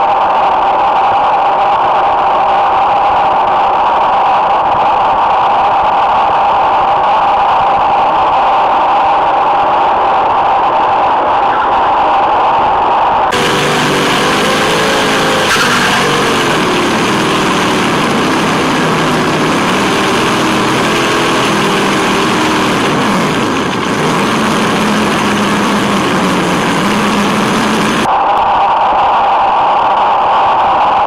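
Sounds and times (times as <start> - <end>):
tyres hissing on asphalt: 13.3 - 24.2
electric motor and gearbox whine: 13.3 - 28.1.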